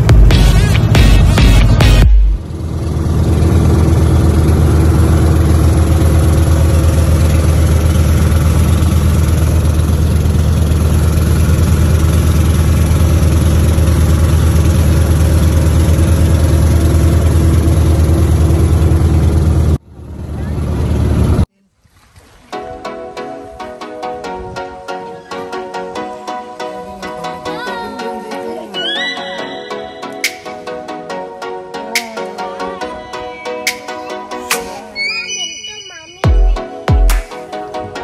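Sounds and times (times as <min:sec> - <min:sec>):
boat engine droning: 0:00.0 - 0:21.5, 0:22.6 - 0:38.0
water and wind hiss: 0:21.6 - 0:22.8.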